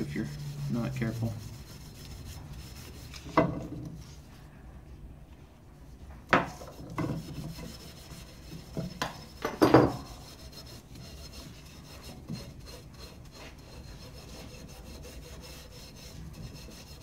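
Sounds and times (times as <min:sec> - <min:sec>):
steel wool scrubbing metal blade: 0:07.0 - 0:17.0.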